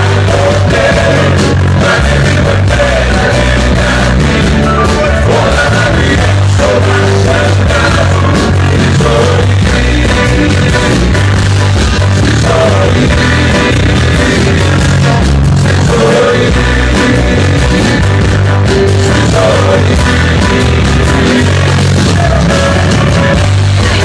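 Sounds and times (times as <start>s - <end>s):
live band with singing: 0.0s - 24.0s.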